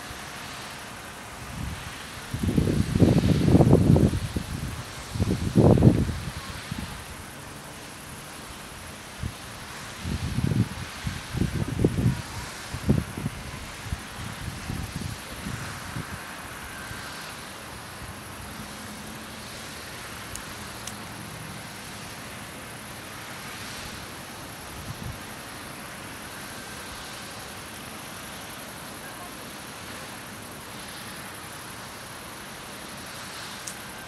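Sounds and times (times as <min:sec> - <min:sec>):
constant hiss: 0:00.0 - 0:34.0.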